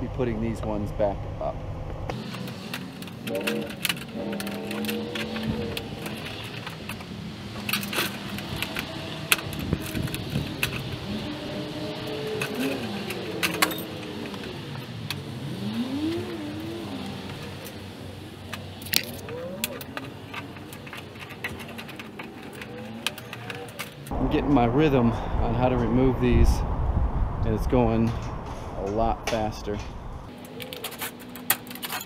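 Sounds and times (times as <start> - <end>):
metal gutter squeaking: 2.2 - 15.0, 18.6 - 24.1.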